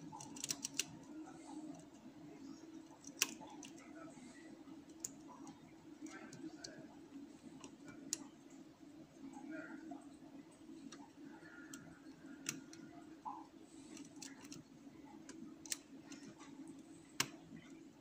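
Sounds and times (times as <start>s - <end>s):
lock pick clicking on pins: 0.2s - 0.9s.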